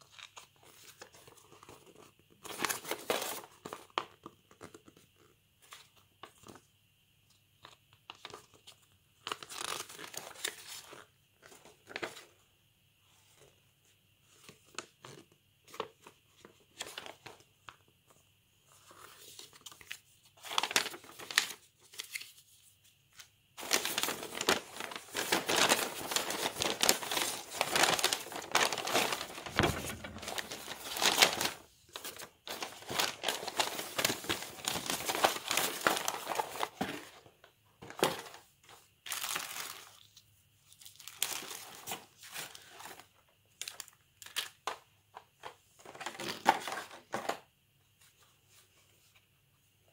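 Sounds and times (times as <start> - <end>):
paper rustling and crinkling: 0.0 - 6.6, 7.6 - 12.3, 14.2 - 47.4.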